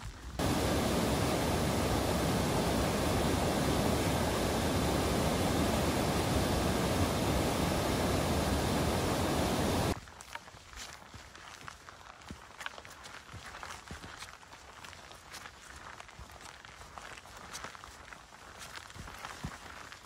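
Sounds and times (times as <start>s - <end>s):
waterfall rushing: 0.4s - 10.0s.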